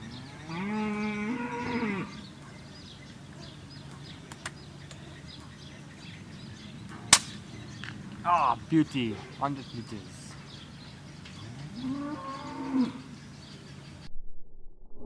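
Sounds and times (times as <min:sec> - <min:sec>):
cow mooing: 0:00.0 - 0:02.3, 0:11.4 - 0:13.1
small birds chirping: 0:00.0 - 0:14.1.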